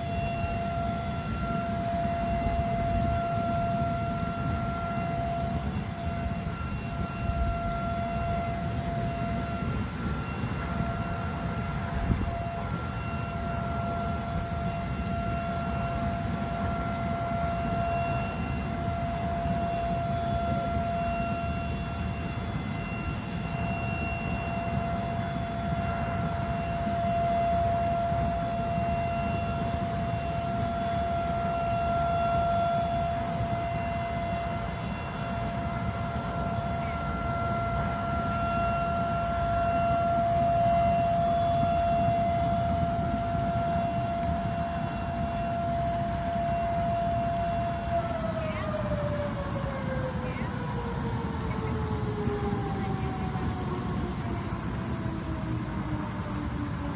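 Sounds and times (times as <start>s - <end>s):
steady whistle tone: 0.0s - 56.9s.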